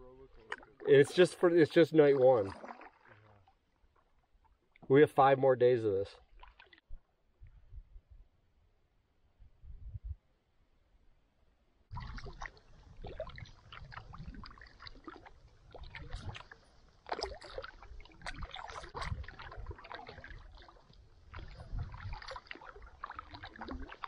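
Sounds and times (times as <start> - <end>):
paddle splashing and dripping: 0.0 - 5.1, 6.2 - 7.2, 11.9 - 24.0.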